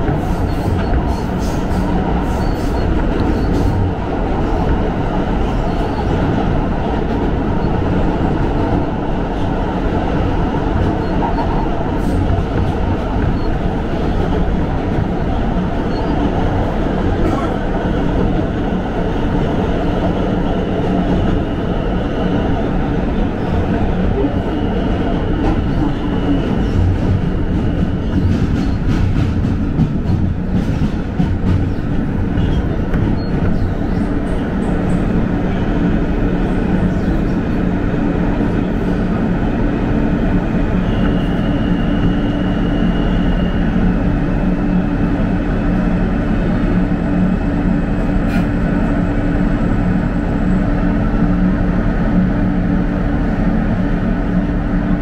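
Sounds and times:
steel wheels rumbling on rail: 0:00.0 - 0:55.0.

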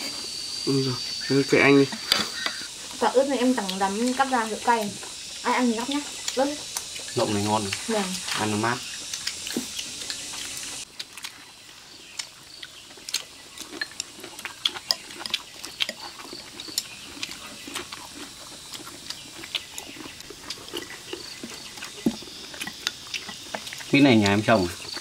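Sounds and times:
steady hiss: 0:00.0 - 0:25.0
chewing: 0:01.8 - 0:25.0
chopsticks clicking against bowls: 0:05.8 - 0:07.9, 0:09.0 - 0:11.3, 0:12.1 - 0:17.9, 0:22.6 - 0:25.0.

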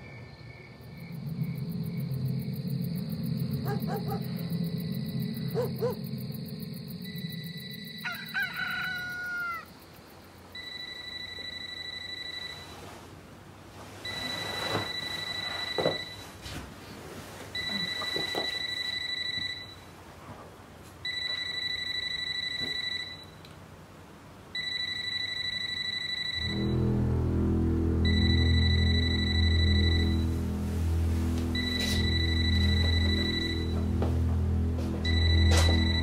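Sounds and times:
rooster crowing: 0:07.9 - 0:09.8.

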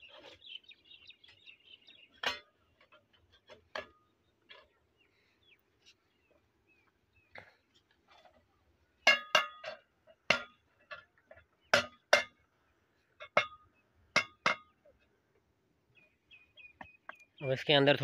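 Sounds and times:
metallic clinks and knocks: 0:09.0 - 0:12.4.

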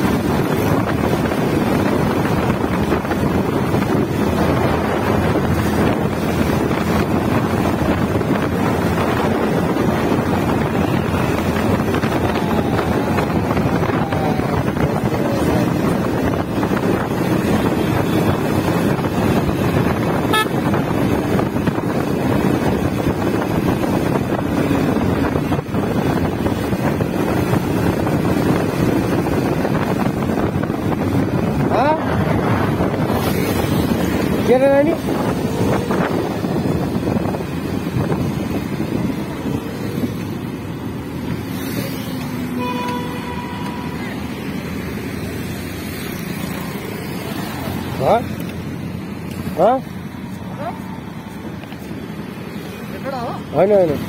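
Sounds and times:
wind noise on microphone: 0:00.0 - 0:54.0
horn toot: 0:20.2 - 0:20.8, 0:42.5 - 0:44.3
short steady tone: 0:42.6 - 0:44.1.

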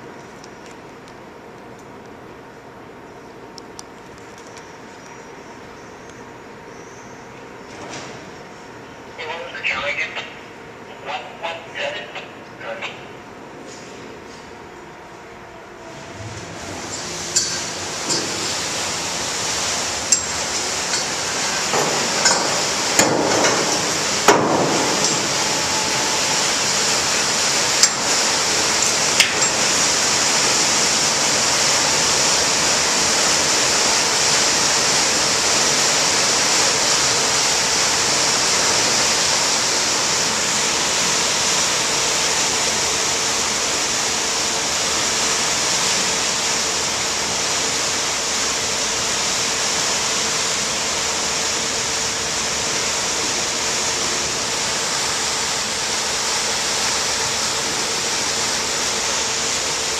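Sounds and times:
churning propeller wash: 0:15.8 - 0:59.9.

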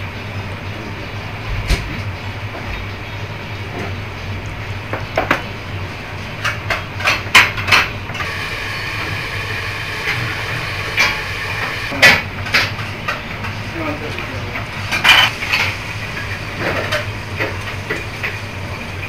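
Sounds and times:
dishes and chopsticks clinking: 0:14.6 - 0:15.8.

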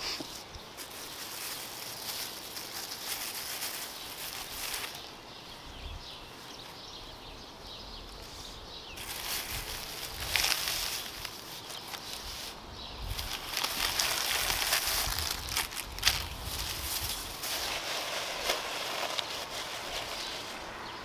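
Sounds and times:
plastic bag and paper crinkling: 0:00.2 - 0:05.2, 0:09.0 - 0:20.6.

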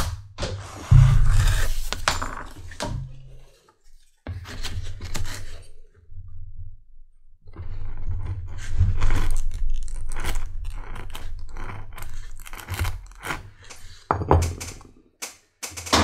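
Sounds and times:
sharp knocks: 0:00.9 - 0:01.8.

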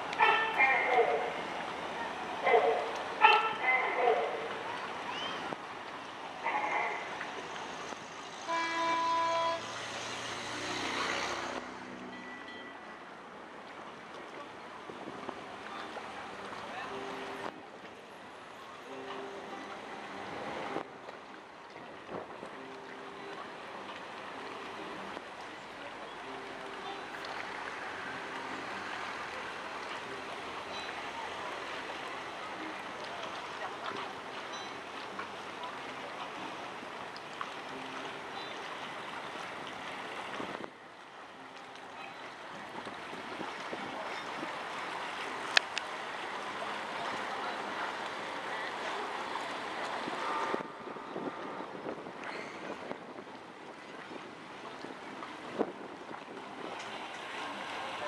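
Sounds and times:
water rushing along boat hull: 0:00.0 - 0:58.0
boat horn blast: 0:00.1 - 0:01.5, 0:02.4 - 0:04.6, 0:08.3 - 0:12.6, 0:18.8 - 0:20.8, 0:26.1 - 0:29.3, 0:48.5 - 0:52.2
faint clicks: 0:45.5 - 0:45.9.

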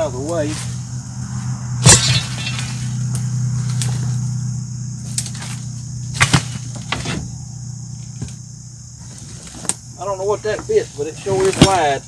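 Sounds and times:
dry brush crackling and snapping: 0:00.0 - 0:00.8, 0:01.8 - 0:04.2, 0:05.0 - 0:07.0
low hum: 0:00.6 - 0:09.0.

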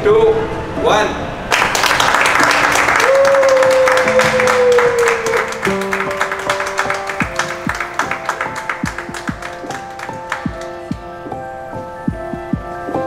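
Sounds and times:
group applauding: 0:01.5 - 0:11.1
music playing: 0:03.7 - 0:13.0.

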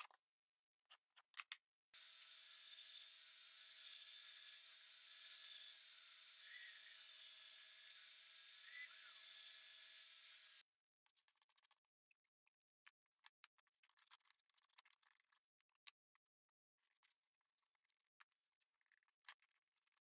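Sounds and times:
bandsaw cutting wood: 0:02.0 - 0:10.6.

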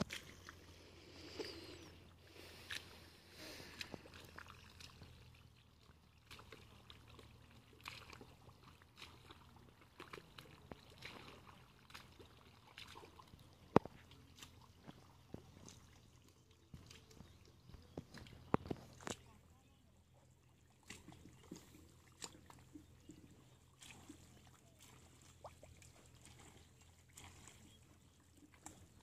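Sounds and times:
hands squelching in muddy water: 0:00.0 - 0:19.3, 0:20.7 - 0:29.0
small splashes and drips: 0:00.0 - 0:29.0.

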